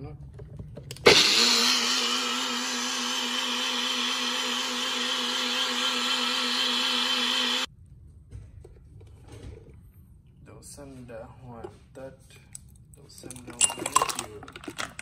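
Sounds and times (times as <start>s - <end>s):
electric blender running: 1.0s - 7.7s.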